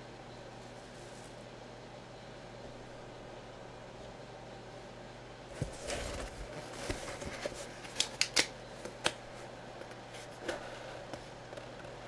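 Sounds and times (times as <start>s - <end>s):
cardboard box rustling: 5.5s - 7.8s.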